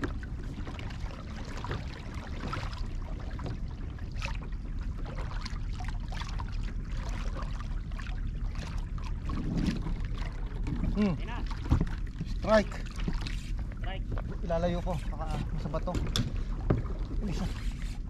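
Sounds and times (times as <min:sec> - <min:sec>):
low rumble: 0:00.0 - 0:18.0
water slapping against hull: 0:00.0 - 0:18.0.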